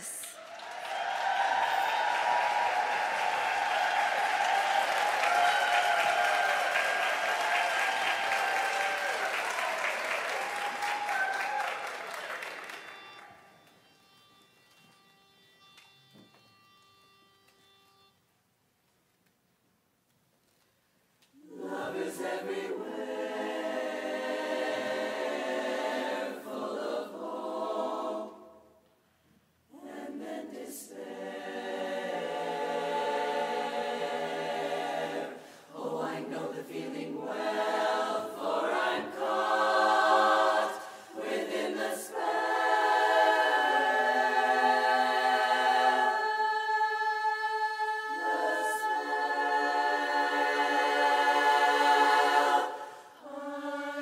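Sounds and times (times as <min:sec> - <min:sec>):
women's chorus singing a cappella: 0:21.4 - 0:28.8, 0:29.7 - 0:54.0.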